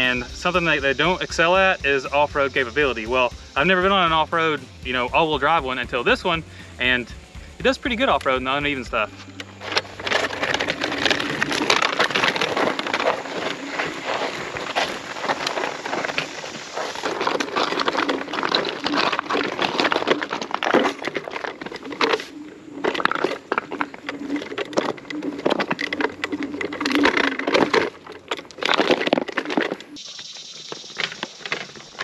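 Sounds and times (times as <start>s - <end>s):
tyres crunching over gravel: 0.0s - 32.0s
small clicks and rattles: 9.6s - 32.0s.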